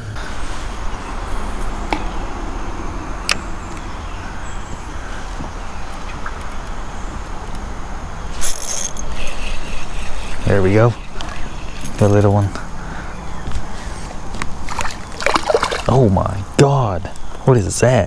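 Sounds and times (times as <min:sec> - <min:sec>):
steady low rumble: 0:00.0 - 0:08.4.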